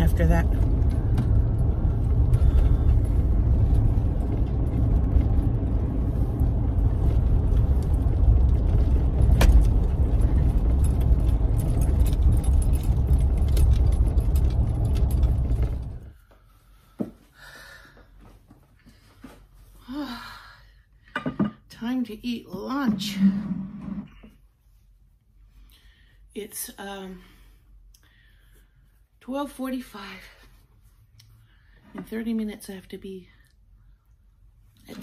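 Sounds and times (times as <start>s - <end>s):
small rattles: 0.0s - 16.1s
truck cab road rumble: 0.0s - 16.1s.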